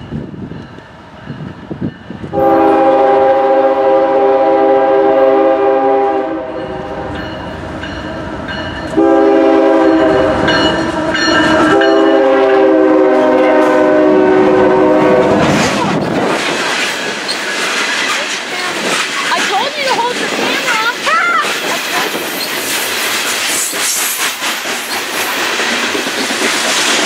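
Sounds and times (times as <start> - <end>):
train rumble: 0.0 - 27.0
locomotive air horn blasts: 2.3 - 7.1, 8.9 - 15.6.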